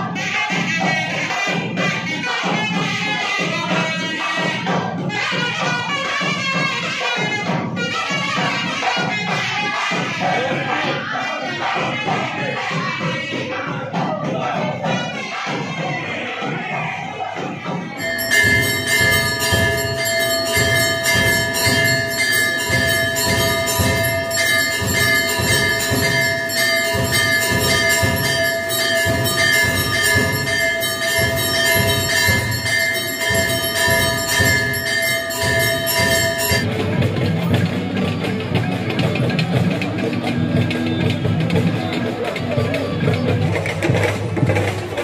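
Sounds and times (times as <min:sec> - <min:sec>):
music: 0:00.0 - 0:45.0
voices: 0:00.0 - 0:45.0
temple bells clanging rapidly: 0:17.7 - 0:45.0.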